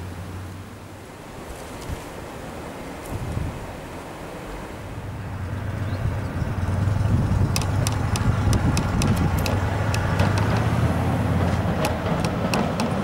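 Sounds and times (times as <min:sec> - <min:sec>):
tram rumble: 0:05.1 - 0:13.0
sharp track clicks: 0:07.5 - 0:10.8, 0:11.4 - 0:13.0.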